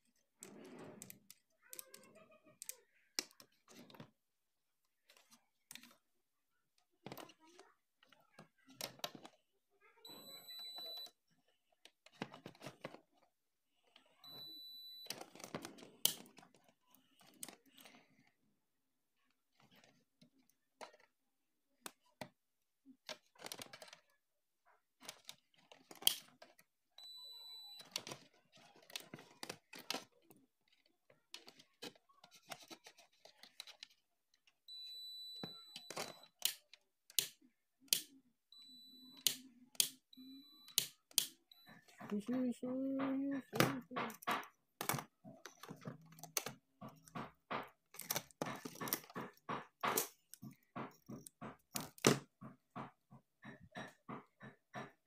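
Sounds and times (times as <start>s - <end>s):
clicks and rustles of handling: 0.0s - 4.2s, 4.8s - 55.0s
multimeter high-pitched beeps: 14.2s - 15.1s, 34.7s - 36.2s, 38.5s - 39.4s.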